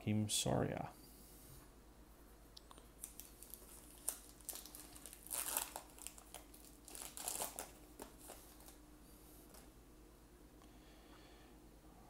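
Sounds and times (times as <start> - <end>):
foil wrapper crinkling and tearing: 2.7 - 8.8.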